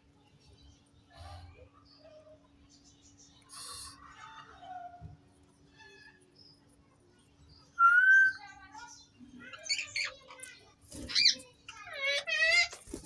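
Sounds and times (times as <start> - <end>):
parrot squawk: 11.1 - 12.8.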